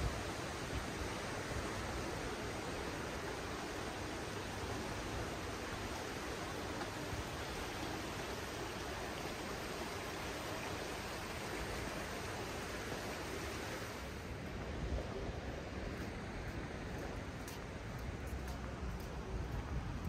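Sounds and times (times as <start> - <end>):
fast-flowing river water: 0.0 - 18.1.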